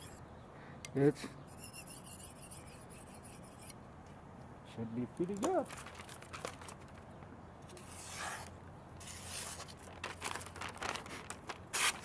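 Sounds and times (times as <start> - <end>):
paper rustling and crinkling: 5.2 - 12.0
knife swishing through paper: 7.8 - 9.8, 11.0 - 12.0.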